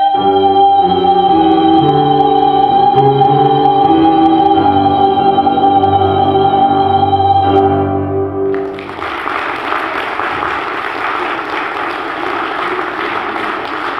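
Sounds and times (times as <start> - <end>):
grand piano: 0.0 - 13.9
audience applause: 8.5 - 13.9.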